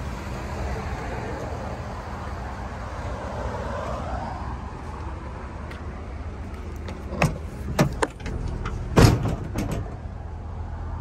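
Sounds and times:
heavy thump: 9.0s - 10.0s.

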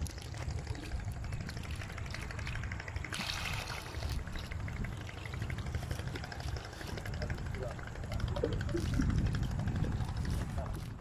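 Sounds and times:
water splash: 0.0s - 6.9s
steady low rumble: 0.0s - 11.0s
water pouring and dripping: 0.0s - 11.0s.

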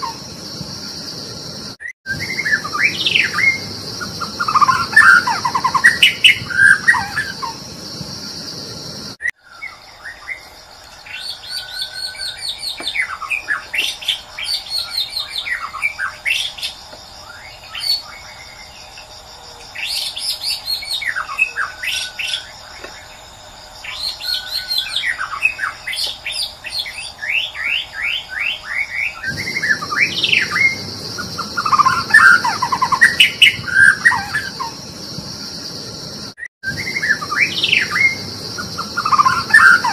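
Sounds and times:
bird whistles and rapid trills: 1.8s - 7.6s, 23.9s - 34.8s, 36.6s - 39.9s
bird singing whistled phrases: 2.1s - 7.4s, 36.7s - 39.9s.

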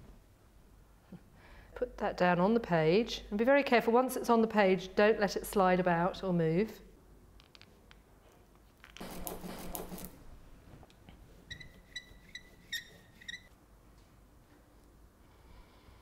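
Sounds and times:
rubber roller squeaking: 11.4s - 13.6s.

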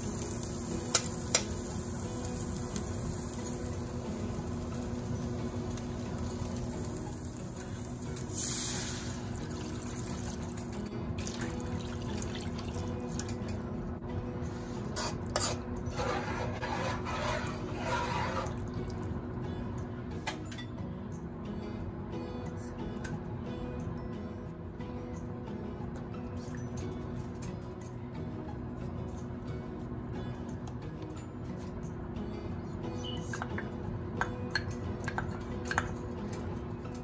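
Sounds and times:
spatula stirring broth: 14.7s - 18.9s.

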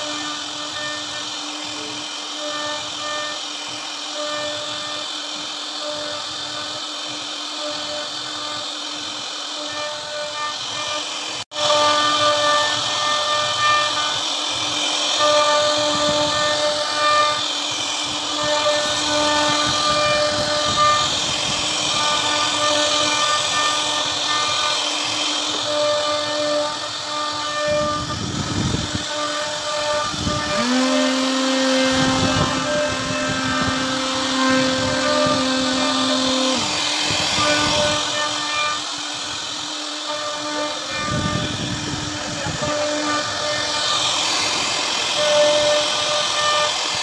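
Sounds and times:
router milling wood: 0.0s - 47.0s.

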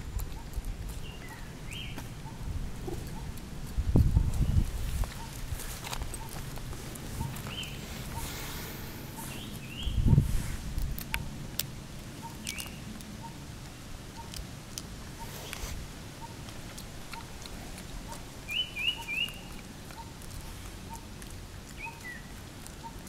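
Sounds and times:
high chirping calls: 7.2s - 10.2s, 12.2s - 13.4s, 18.0s - 21.0s, 21.8s - 23.0s.

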